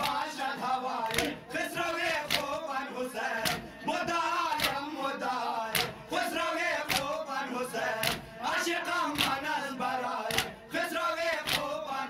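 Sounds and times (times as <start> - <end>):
chest-beating slaps: 0.0 - 0.2, 1.0 - 1.4, 2.3 - 2.5, 3.4 - 3.7, 4.5 - 4.8, 5.7 - 6.1, 6.8 - 7.1, 8.0 - 8.3, 9.2 - 9.4, 10.3 - 10.6, 11.4 - 11.7
men chanting lament: 0.0 - 12.0.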